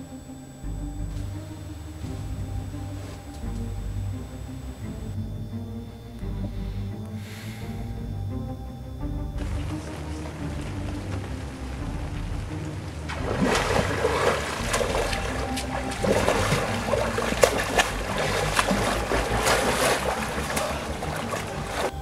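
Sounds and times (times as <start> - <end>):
water splashing from swim strokes: 9.2 - 22.0.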